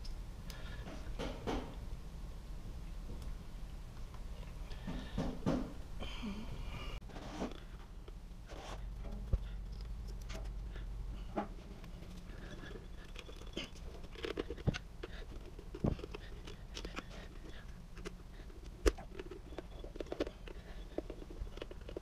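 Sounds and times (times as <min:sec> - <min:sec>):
small clicks and rustles of wires: 0:02.9 - 0:04.8, 0:07.1 - 0:22.0.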